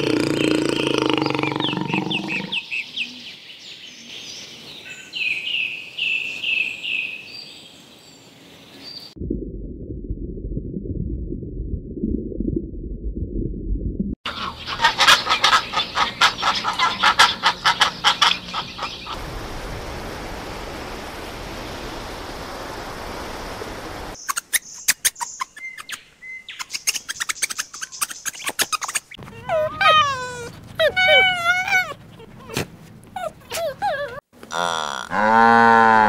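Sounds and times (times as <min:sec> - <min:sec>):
muffled low rumble: 0:09.2 - 0:14.2.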